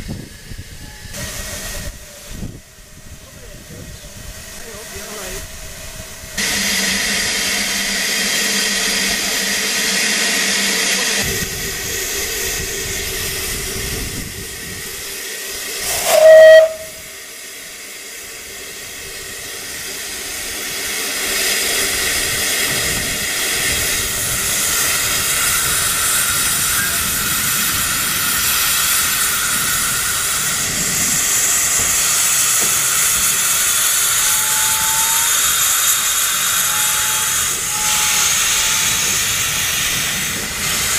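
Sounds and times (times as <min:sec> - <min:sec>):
steam locomotive hissing: 0:00.0 - 0:40.9
steam whistle blast: 0:15.8 - 0:17.2, 0:33.8 - 0:39.1.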